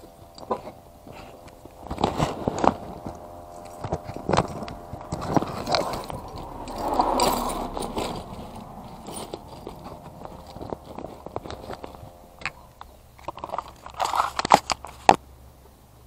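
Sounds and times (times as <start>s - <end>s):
cloth bag rustling: 1.1s - 15.1s
keys jingling: 3.5s - 15.0s.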